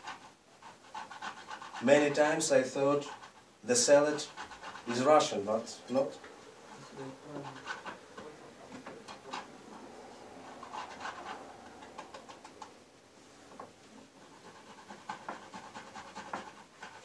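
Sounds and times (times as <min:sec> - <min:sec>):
potato scraping on grater: 0:14.1 - 0:17.0.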